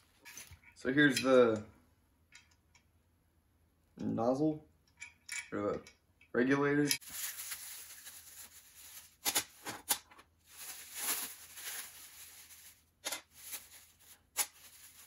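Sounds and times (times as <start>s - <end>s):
plastic packaging crinkling: 7.0s - 15.0s.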